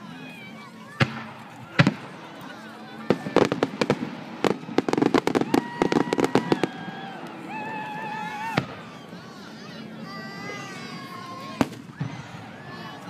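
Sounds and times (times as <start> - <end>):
firework bangs and crackles: 0.9 - 9.1, 11.4 - 13.0.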